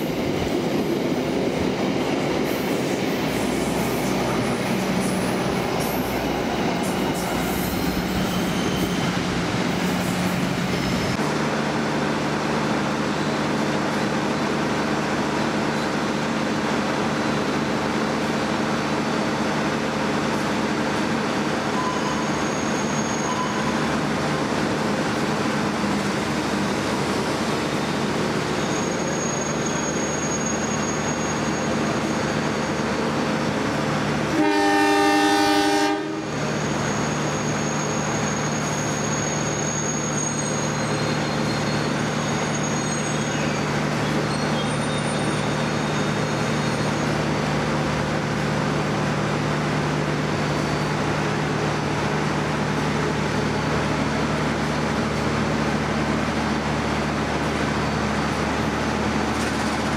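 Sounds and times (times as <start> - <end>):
locomotive engine humming: 0.0 - 22.5
train horn blast: 34.3 - 36.4.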